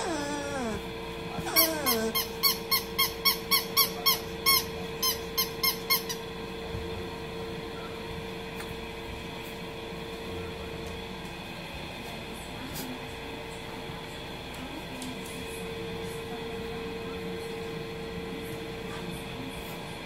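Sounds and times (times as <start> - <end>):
faint hum: 0.0 - 20.0
rubber squeaky toy squeaking: 1.4 - 3.9.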